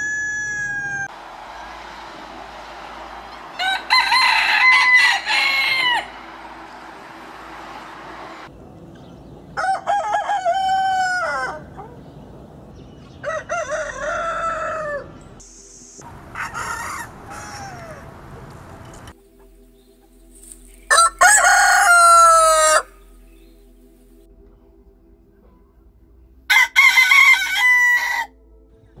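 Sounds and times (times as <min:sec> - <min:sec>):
roosters crowing: 0:00.0 - 0:08.5, 0:09.5 - 0:12.2, 0:13.1 - 0:15.2, 0:16.0 - 0:19.1, 0:20.9 - 0:23.1, 0:26.5 - 0:28.3.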